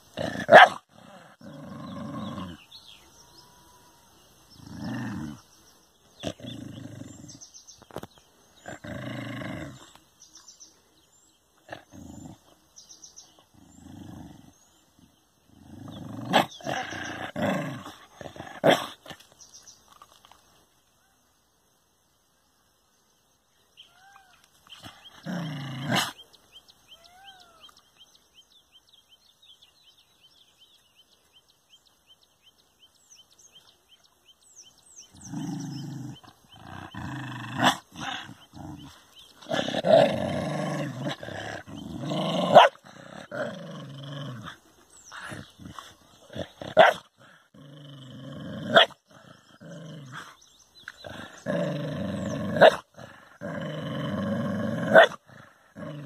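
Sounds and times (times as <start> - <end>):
dog growling: 0.1 - 3.1, 4.5 - 5.5, 6.2 - 7.5, 8.6 - 10.0, 11.6 - 12.6, 13.4 - 19.2, 24.8 - 26.2, 35.0 - 56.0
dog barking: 0.5 - 0.8, 42.5 - 42.8, 46.8 - 47.0, 48.7 - 49.0, 54.9 - 55.2.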